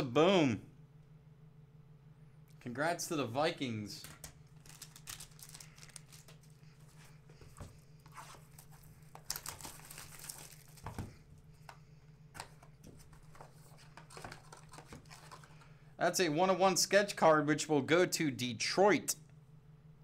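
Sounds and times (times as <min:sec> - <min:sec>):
steady low hum: 0:00.0 - 0:20.0
foil wrappers crinkling: 0:04.0 - 0:07.2, 0:08.2 - 0:11.2.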